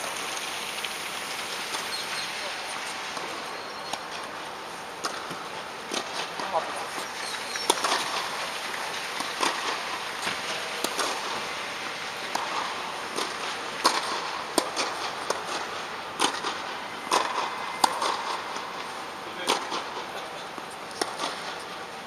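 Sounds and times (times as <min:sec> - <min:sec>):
tennis balls bouncing on court: 0:05.0 - 0:08.3, 0:09.2 - 0:11.5, 0:12.3 - 0:21.7
tennis balls struck by rackets: 0:05.0 - 0:08.3, 0:09.2 - 0:11.5, 0:12.3 - 0:21.7.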